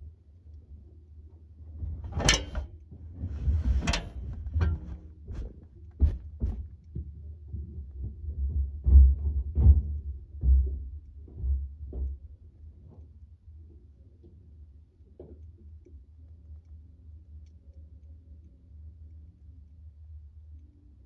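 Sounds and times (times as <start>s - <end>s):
irregular thumps and knocks: 1.8s - 12.2s.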